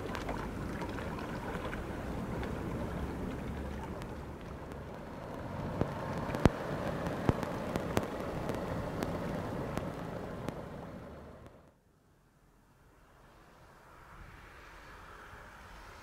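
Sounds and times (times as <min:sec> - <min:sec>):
seaside rushing noise: 0:01.3 - 0:11.6
sharp clicks and taps: 0:04.0 - 0:11.7.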